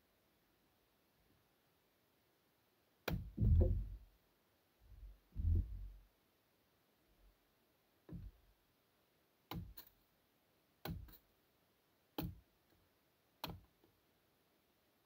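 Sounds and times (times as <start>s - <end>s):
axe splitting wood: 3.1s - 4.0s, 9.5s - 9.8s, 10.8s - 11.2s, 12.2s - 12.4s.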